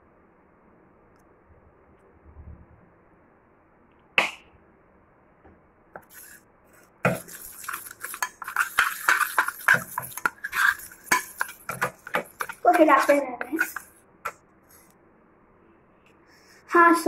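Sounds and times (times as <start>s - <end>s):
spoon clinking and scraping a bowl: 6.0s - 14.4s.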